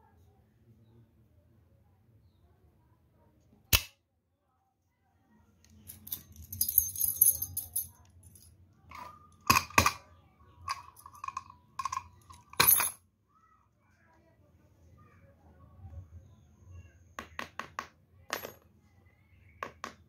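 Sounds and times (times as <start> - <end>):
padlock and key jingling: 5.8 - 10.0, 10.7 - 13.0.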